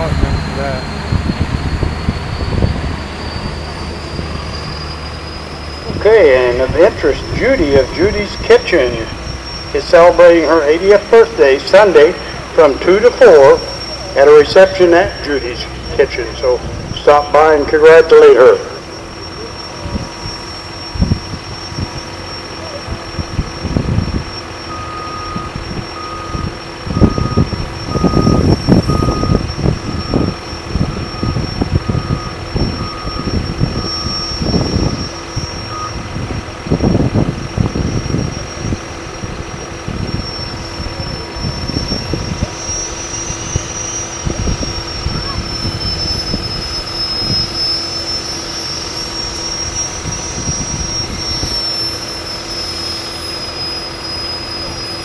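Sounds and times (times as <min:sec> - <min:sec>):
low engine rumble: 0:00.0 - 0:55.0
vehicle back-up alarm beeping: 0:00.0 - 0:55.0.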